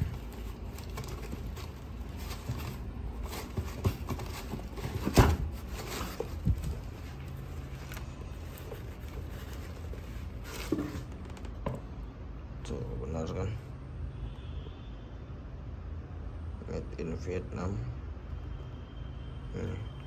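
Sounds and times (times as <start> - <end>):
rustling of tissue paper: 0.0 - 11.6.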